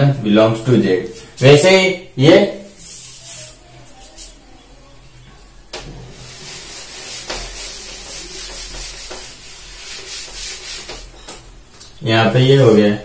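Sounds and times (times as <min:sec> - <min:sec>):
eraser rubbing on whiteboard: 0:02.7 - 0:04.4, 0:06.0 - 0:11.2.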